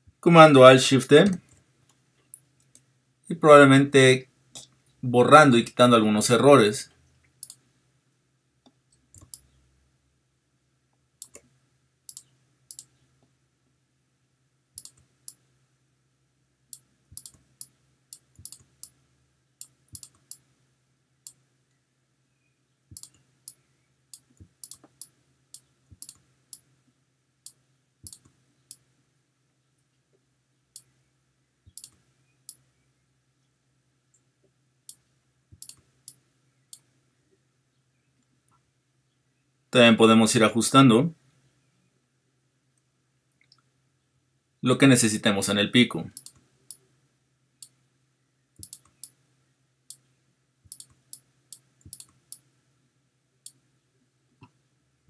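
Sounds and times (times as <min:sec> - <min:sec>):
faint low hum: 0:00.0 - 0:55.0
computer mouse clicking: 0:07.4 - 0:07.6, 0:08.6 - 0:09.6, 0:11.2 - 0:11.5, 0:12.1 - 0:13.0, 0:14.8 - 0:15.4, 0:16.7 - 0:19.0, 0:19.6 - 0:20.5, 0:22.9 - 0:26.7, 0:27.4 - 0:28.8, 0:31.7 - 0:32.6, 0:34.9 - 0:36.9, 0:46.1 - 0:46.8, 0:48.6 - 0:49.2, 0:50.6 - 0:52.5.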